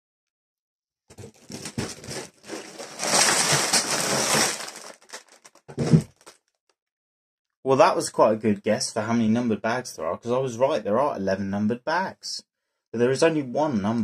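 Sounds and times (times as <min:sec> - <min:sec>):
plastic bags crinkling: 0:01.1 - 0:06.4.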